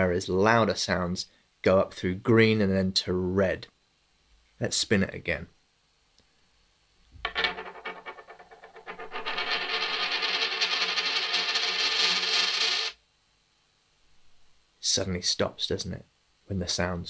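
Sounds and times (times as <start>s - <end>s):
coin spinning on wooden table: 7.2s - 13.0s.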